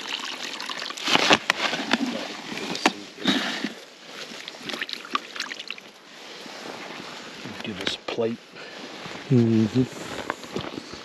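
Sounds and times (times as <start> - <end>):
water splashing and sloshing: 0.0 - 7.4.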